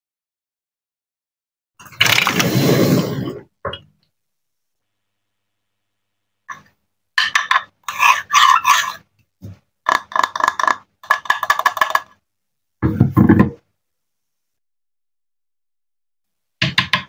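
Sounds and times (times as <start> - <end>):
scraping and rubbing on a table: 7.6 - 9.7.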